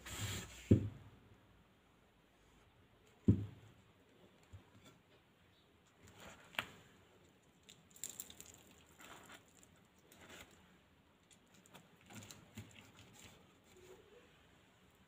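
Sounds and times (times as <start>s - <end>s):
crisp fritter crackling: 6.6s - 10.6s.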